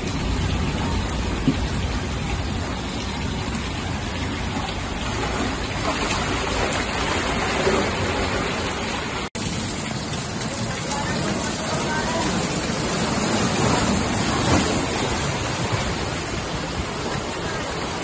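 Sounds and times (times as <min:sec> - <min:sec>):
floodwater running along ground: 0:00.0 - 0:18.0
heavy rain pouring: 0:00.0 - 0:18.0.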